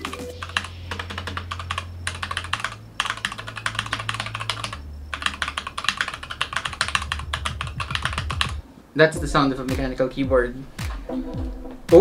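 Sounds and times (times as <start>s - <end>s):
mechanical keyboard typing: 0.0s - 8.6s.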